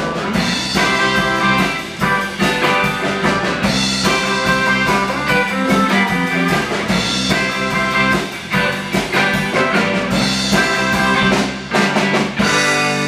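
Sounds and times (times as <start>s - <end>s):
blues band playing: 0.0s - 13.0s
drum beat: 0.0s - 13.0s
electric guitar: 0.0s - 13.0s.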